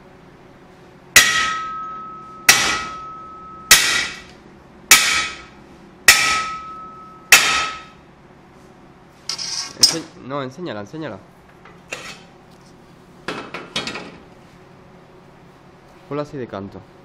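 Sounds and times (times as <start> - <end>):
sword blade striking with ringing: 1.2 - 4.3, 4.9 - 5.5, 6.1 - 8.0.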